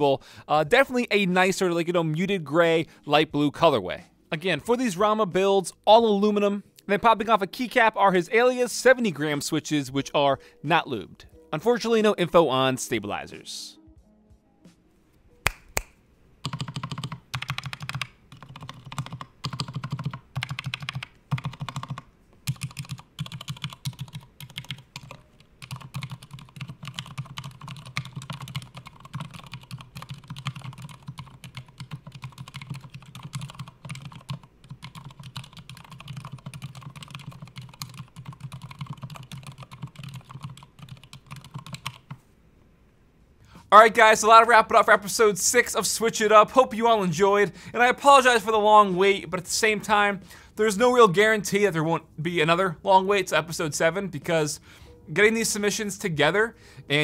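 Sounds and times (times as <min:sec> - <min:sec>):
keyboard typing: 0:16.4 - 0:42.2.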